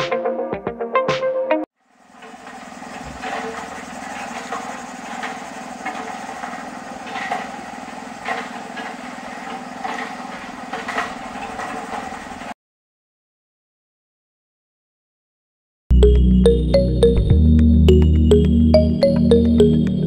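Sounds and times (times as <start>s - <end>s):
electric water pump humming: 1.8s - 12.6s.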